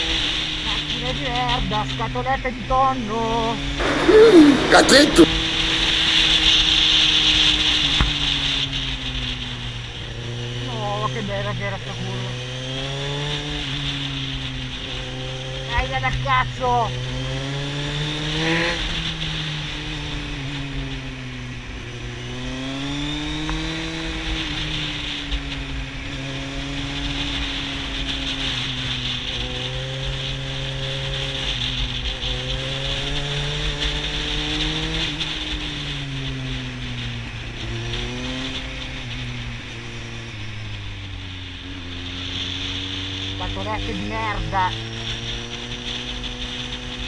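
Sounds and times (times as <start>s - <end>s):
motorcycle engine revving: 0.0s - 47.0s
wind noise: 3.3s - 10.7s.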